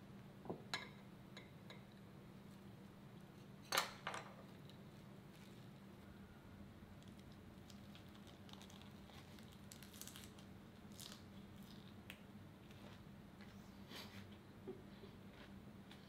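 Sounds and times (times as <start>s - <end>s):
faint steady hum: 0.0s - 16.0s
lettuce wrap rustling and crunching: 7.0s - 12.0s.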